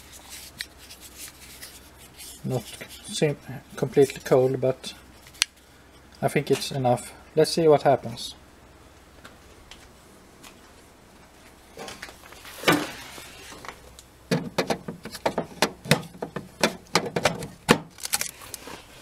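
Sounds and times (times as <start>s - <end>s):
sharp clicks and knocks: 14.3s - 17.9s.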